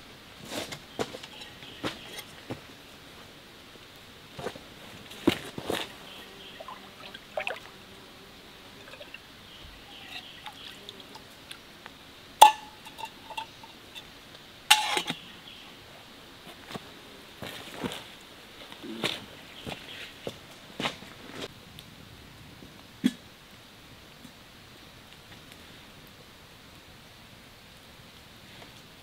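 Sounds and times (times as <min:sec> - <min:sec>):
footsteps on wet stones: 0:04.4 - 0:06.2
stream trickling: 0:04.4 - 0:15.5
water pouring and dripping: 0:05.0 - 0:07.8, 0:08.7 - 0:11.6.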